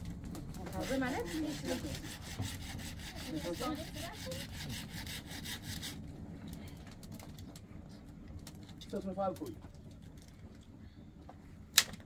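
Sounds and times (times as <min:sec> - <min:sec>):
rhythmic rasping strokes: 0:00.5 - 0:06.0.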